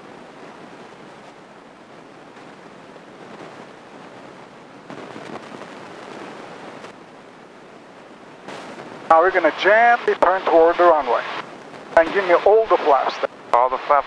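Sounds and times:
airplane in flight hiss: 8.5s - 14.0s.

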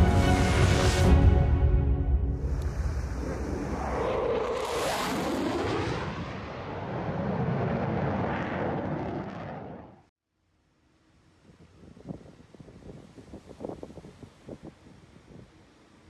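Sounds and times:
fighter jet flying past: 2.3s - 10.1s.

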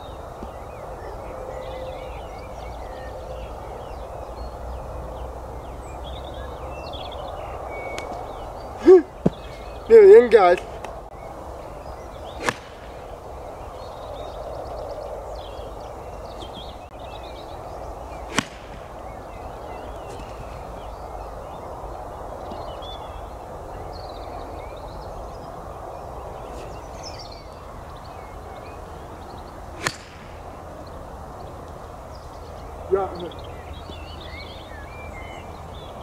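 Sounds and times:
birds chirping: 0.0s - 36.0s
outdoor hush: 6.7s - 23.3s, 26.0s - 34.7s
golf club striking ball: 12.3s - 13.1s, 18.3s - 20.3s, 29.8s - 30.6s.

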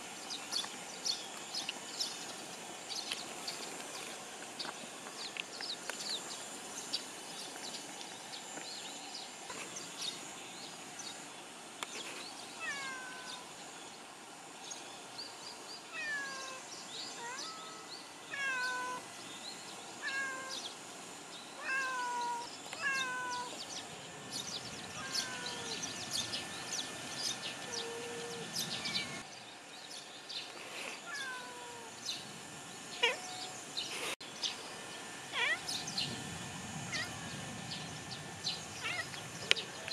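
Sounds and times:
cats meowing: 17.2s - 19.0s, 20.0s - 20.6s, 21.6s - 23.6s, 24.9s - 25.8s, 31.0s - 31.9s, 33.0s - 33.6s, 35.4s - 35.8s, 38.8s - 39.2s.

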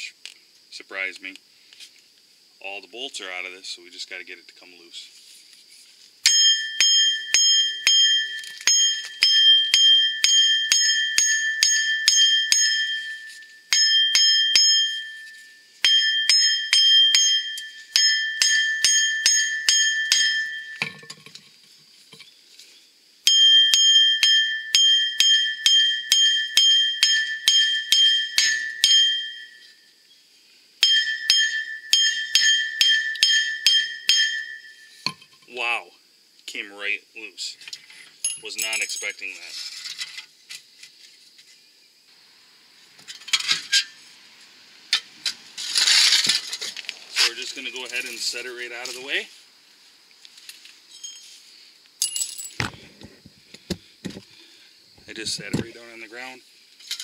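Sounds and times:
sledgehammer striking steel: 6.2s - 21.1s, 23.3s - 29.6s, 30.8s - 35.2s.

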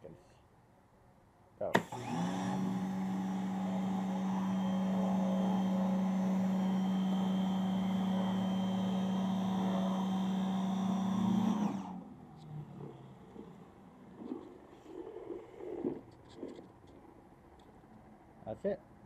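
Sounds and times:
pressure washer humming: 1.8s - 12.1s.

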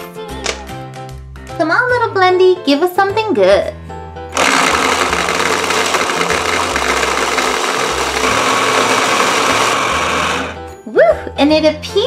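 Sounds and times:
gumballs tumbling in plastic jar: 4.4s - 9.8s
toy blender whirring: 4.4s - 10.6s.

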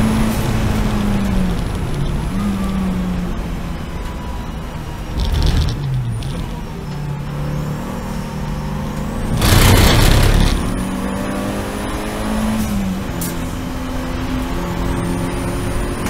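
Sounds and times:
race car engine at speed: 0.0s - 16.0s
loud rushing hiss: 9.4s - 10.7s.

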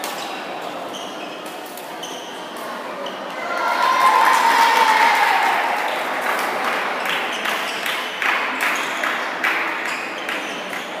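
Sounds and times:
crowd noise: 0.0s - 11.0s
crowd shout or cheer: 3.4s - 6.6s.

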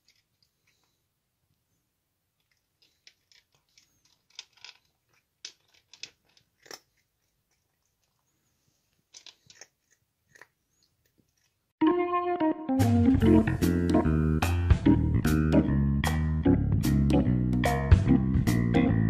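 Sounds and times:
cat crunching dry kibble: 2.4s - 11.7s.

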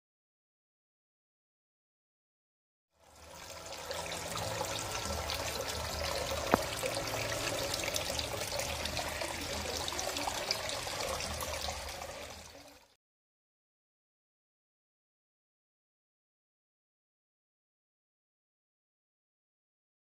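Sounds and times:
water trickling in fish tank: 3.0s - 13.0s.

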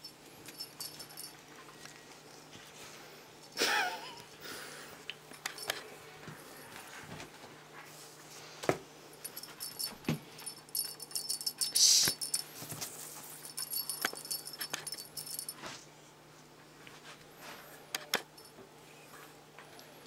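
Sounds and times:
small bell jingling: 0.0s - 1.4s, 5.3s - 5.8s, 9.2s - 15.6s.

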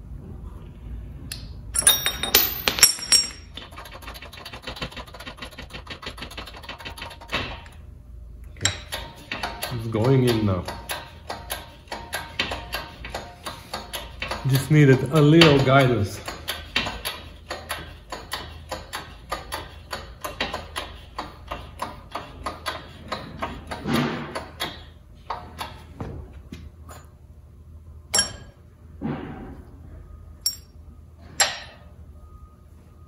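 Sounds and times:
metal parts clinking: 1.8s - 3.9s, 30.4s - 30.7s.

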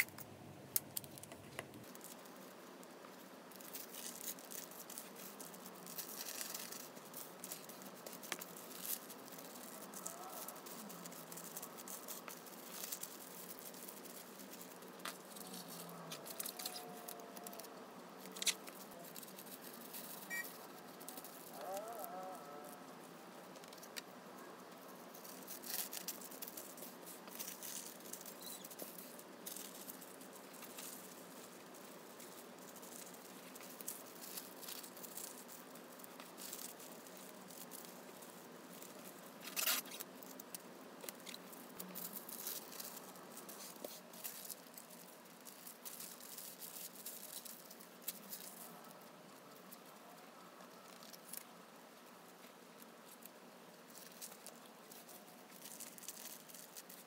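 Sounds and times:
tissue paper rustling: 3.5s - 22.8s.

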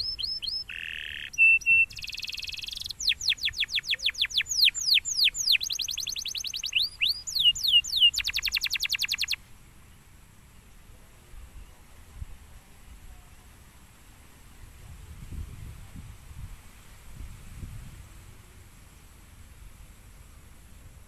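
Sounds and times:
canary singing: 0.0s - 9.4s.

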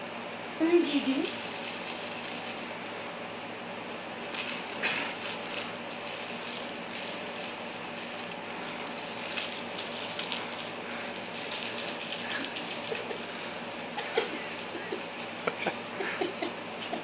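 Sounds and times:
puppy claws clicking on floor: 4.2s - 17.0s.

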